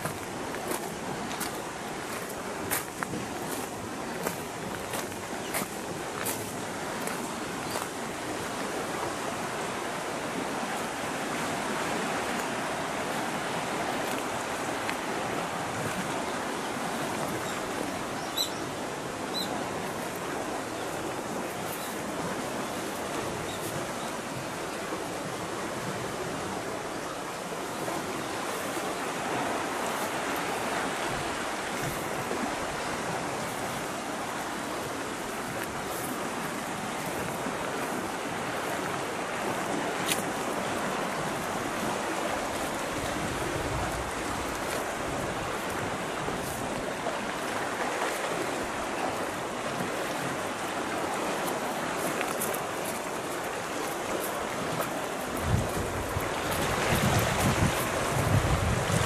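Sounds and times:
sea waves on rocky shore: 0.0 - 59.0
wind buffeting microphone: 27.8 - 47.7, 53.7 - 59.0.

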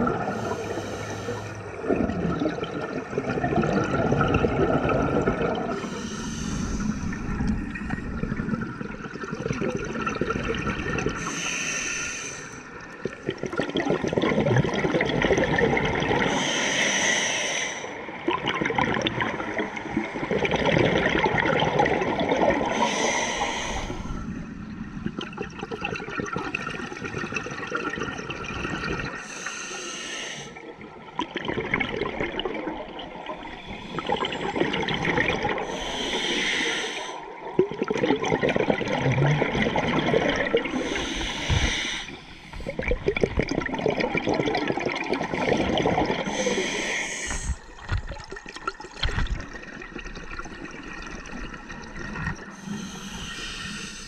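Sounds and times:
gurgling exhaled bubbles: 0.0 - 11.4, 12.8 - 16.4, 18.1 - 29.2, 30.7 - 54.0
hissing regulator inhale: 0.3 - 1.6, 5.7 - 7.3, 11.2 - 12.7, 16.3 - 18.0, 22.7 - 24.5, 29.1 - 30.7, 35.6 - 37.3, 40.7 - 42.8, 46.3 - 47.7, 52.5 - 54.0.

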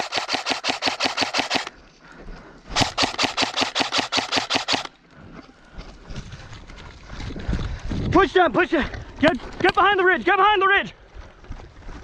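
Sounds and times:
airsoft rifle full-auto burst: 0.0 - 1.7, 2.8 - 4.9.

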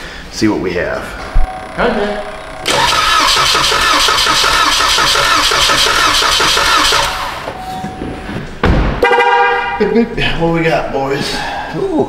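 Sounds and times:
car engine cranking: 1.5 - 7.6.

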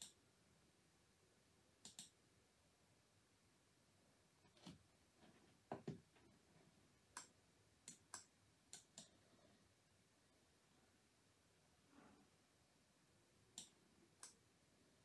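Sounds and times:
computer mouse clicks: 0.0 - 0.2, 1.8 - 2.2, 7.1 - 9.2, 13.5 - 14.4.

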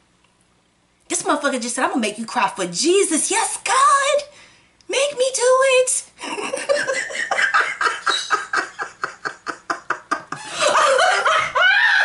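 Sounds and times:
woman laughing loudly: 6.2 - 12.0.

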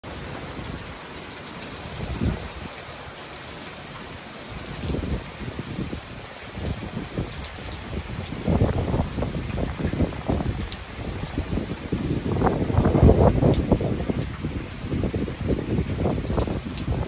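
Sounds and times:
steady rain falling: 0.0 - 17.0
wind buffeting microphone: 1.8 - 2.8, 4.6 - 17.0.

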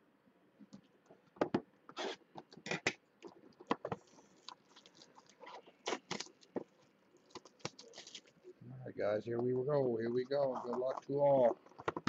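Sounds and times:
plastic wrap crinkling: 4.0 - 8.5.

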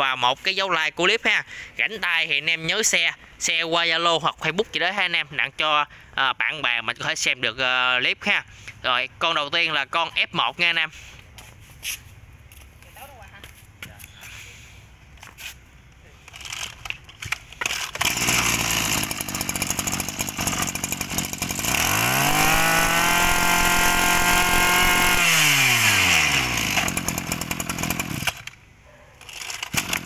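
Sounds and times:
brush cutter engine revving: 16.2 - 28.6, 29.2 - 30.0.

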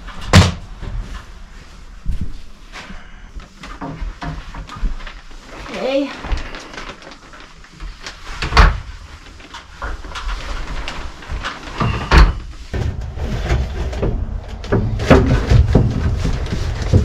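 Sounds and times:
carpentry knocks and bangs: 11.8 - 17.0.

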